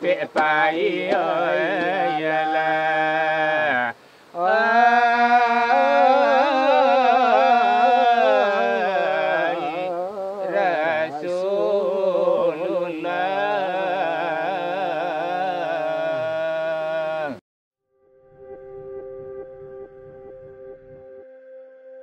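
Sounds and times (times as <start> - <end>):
men singing devotional chant: 0.0 - 17.4.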